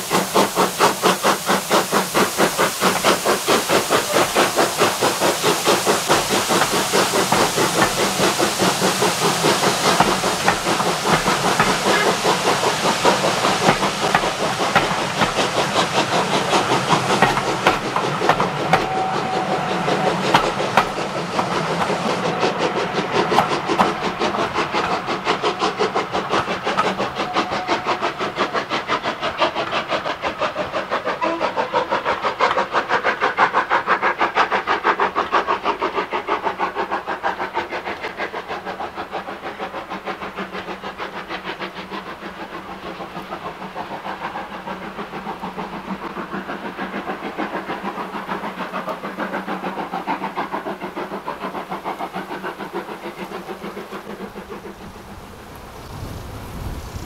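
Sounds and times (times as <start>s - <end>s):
coaches clattering on rails: 0.0s - 31.4s
steam hissing: 0.0s - 57.0s
steam train exhaust beat: 0.0s - 57.0s.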